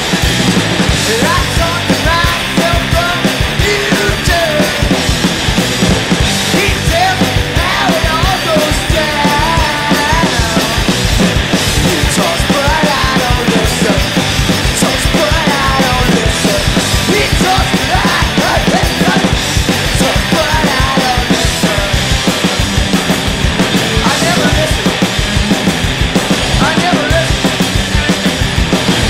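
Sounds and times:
bass guitar: 0:00.0 - 0:29.0
electric guitar: 0:00.0 - 0:29.0
fast drum kit beat: 0:00.0 - 0:29.0
man singing: 0:01.0 - 0:05.0, 0:06.4 - 0:10.9, 0:11.6 - 0:22.4, 0:23.8 - 0:25.0, 0:26.5 - 0:27.6.

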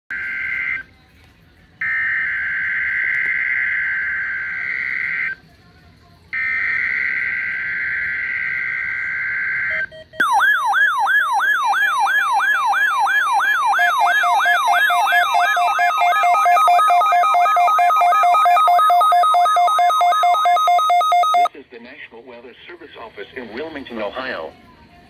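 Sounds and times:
siren-like alarm sweep: 0:01.8 - 0:05.4, 0:06.4 - 0:21.5
rapid beeping: 0:06.4 - 0:21.5.

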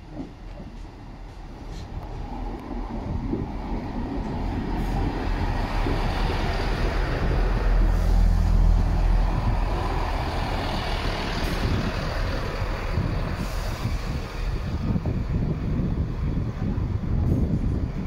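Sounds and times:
train rumbling on rails: 0:00.0 - 0:18.0.

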